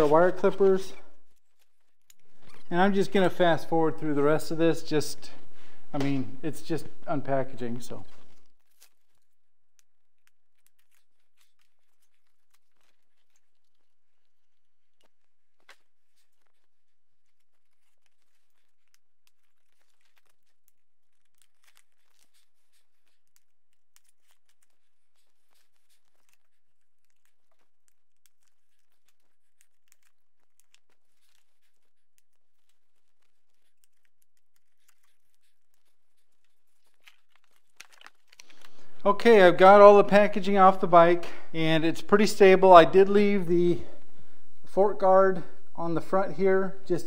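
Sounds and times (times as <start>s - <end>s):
packaging crinkling and tearing: 7.5s - 39.7s.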